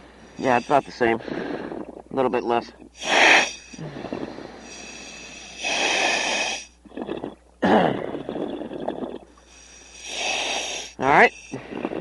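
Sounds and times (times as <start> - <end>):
steady low hiss: 0.0 - 12.0
diver breathing through regulator: 3.0 - 7.2, 8.0 - 12.0.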